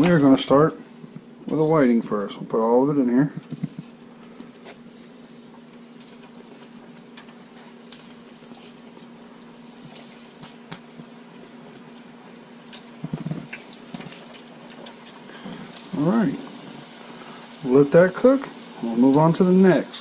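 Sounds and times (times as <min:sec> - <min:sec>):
oil sizzling and bubbling: 0:03.3 - 0:20.0.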